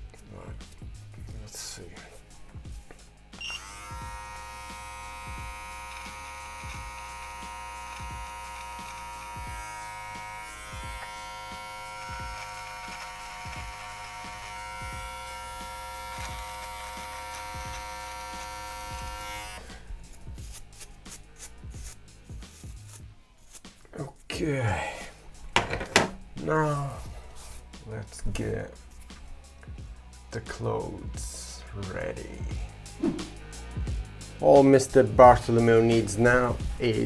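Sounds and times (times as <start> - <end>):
electric beard trimmer buzzing: 3.4 - 20.6.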